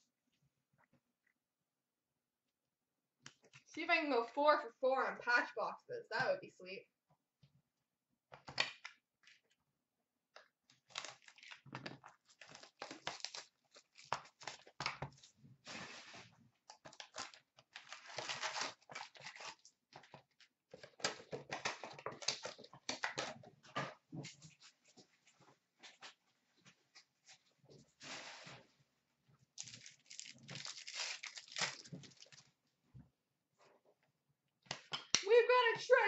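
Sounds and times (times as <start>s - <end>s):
card wrappers tearing and crinkling: 10.7s - 15.0s, 16.8s - 20.1s, 29.6s - 32.5s.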